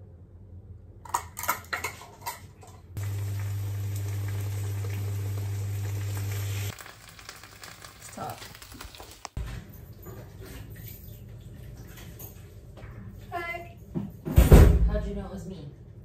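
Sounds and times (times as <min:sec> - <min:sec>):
low hum: 0:03.0 - 0:06.8
oil sizzling in a frying pan: 0:03.0 - 0:09.4.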